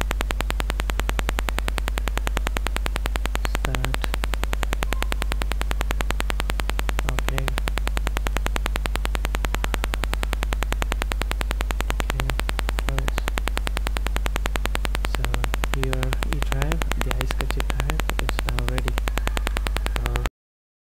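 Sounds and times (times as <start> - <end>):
microphone electrical hum and buzz: 0.0 - 20.3
faint muffled voice: 3.4 - 4.1, 12.0 - 13.3, 15.1 - 20.3.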